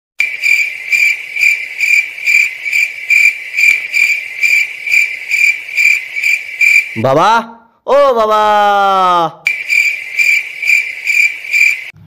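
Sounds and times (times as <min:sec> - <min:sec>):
cricket chirping: 0:00.2 - 0:07.0, 0:09.5 - 0:12.0.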